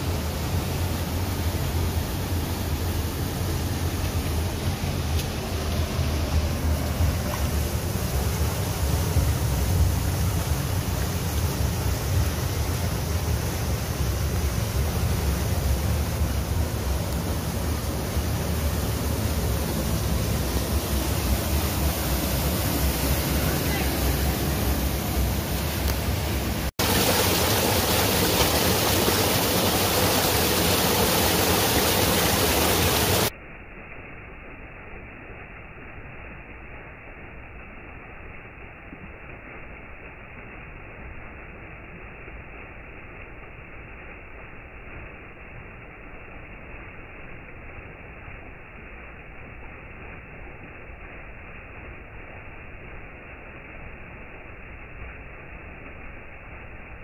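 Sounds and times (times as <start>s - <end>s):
river water rushing over rocks: 0.0s - 33.3s
river rapids rushing: 22.5s - 33.3s.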